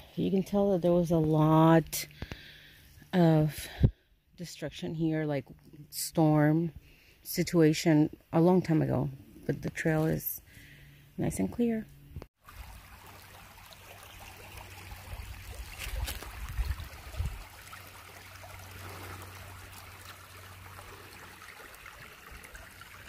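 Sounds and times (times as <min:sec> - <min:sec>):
creek trickling over stones: 0:12.4 - 0:23.0.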